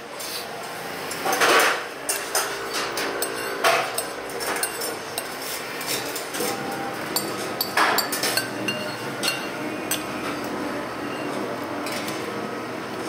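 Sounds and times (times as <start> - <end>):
dish and cutlery clinks: 1.2 - 6.3, 7.2 - 10.1.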